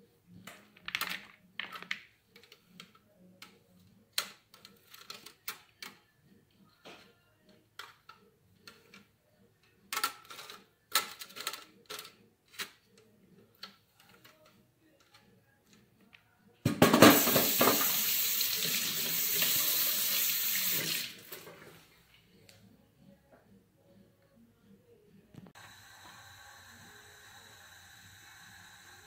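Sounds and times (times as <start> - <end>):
water running from a tap: 17.1 - 21.3.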